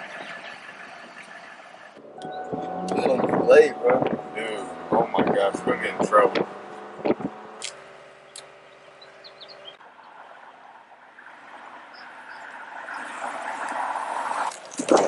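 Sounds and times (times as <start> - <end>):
car approaching on road: 0.0 - 15.0
car cabin hum: 2.0 - 9.8.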